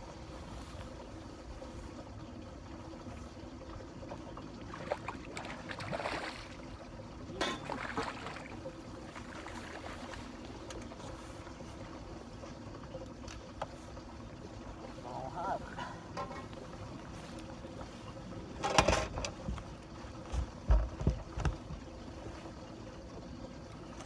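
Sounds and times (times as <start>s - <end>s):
boat engine hum: 0.0s - 24.0s
water noise: 0.0s - 24.0s.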